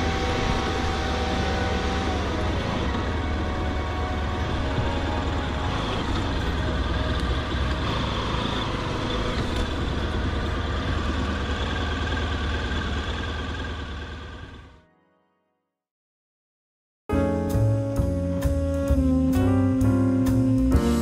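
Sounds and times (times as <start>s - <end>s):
motorcycle engine running: 0.0s - 14.8s.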